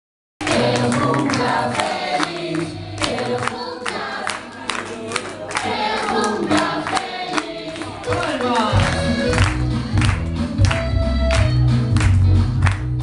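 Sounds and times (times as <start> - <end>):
group singing: 0.4 - 10.2
hand clapping: 0.4 - 13.0.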